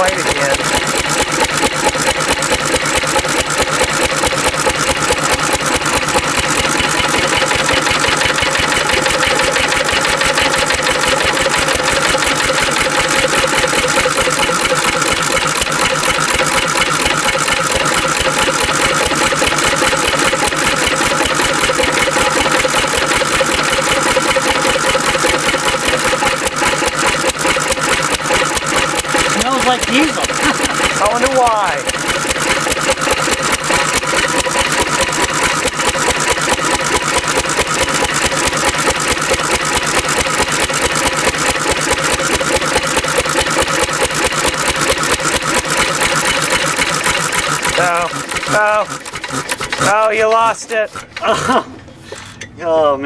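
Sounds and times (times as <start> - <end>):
stationary engine running: 0.0 - 51.6.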